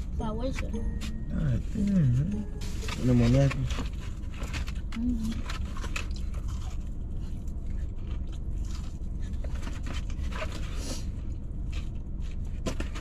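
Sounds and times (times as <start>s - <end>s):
low hum inside a car: 0.0s - 13.0s
chewing: 4.4s - 10.8s.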